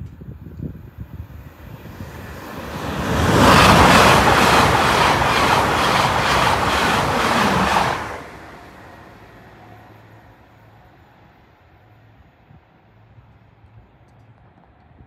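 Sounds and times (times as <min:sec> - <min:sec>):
train passing: 0:00.3 - 0:13.8
train wheels clattering: 0:02.4 - 0:08.2.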